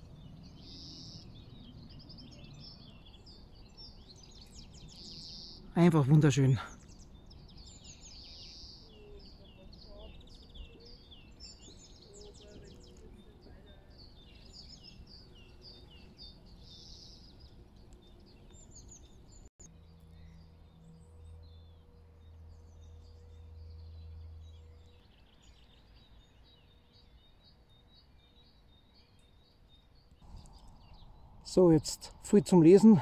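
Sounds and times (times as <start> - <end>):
small birds singing: 0.0 - 33.0
low steady hum: 15.1 - 33.0.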